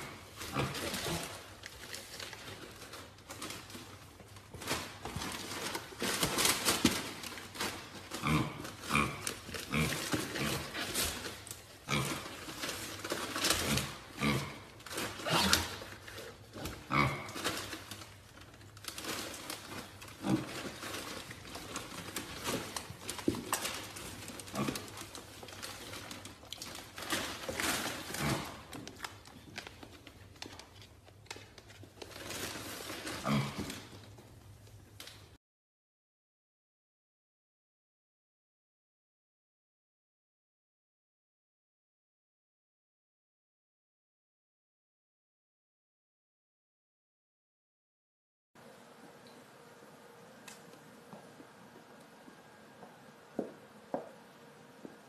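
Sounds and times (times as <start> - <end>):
animal grunts: 0.0 - 1.5, 8.1 - 11.0, 11.8 - 12.4, 13.6 - 15.9, 16.6 - 17.4, 24.4 - 25.1, 28.1 - 28.7, 33.1 - 33.9.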